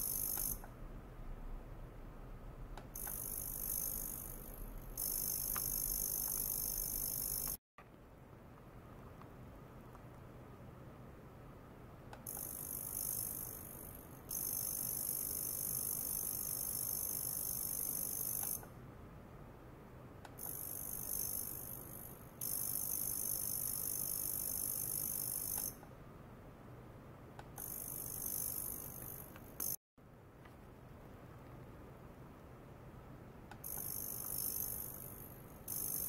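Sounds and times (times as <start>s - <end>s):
shrill high-pitched ultrasonic hiss: 0.0s - 0.7s, 2.9s - 7.6s, 12.3s - 18.7s, 20.4s - 25.8s, 27.6s - 29.8s, 33.6s - 36.0s
low electrical hum: 0.0s - 14.3s.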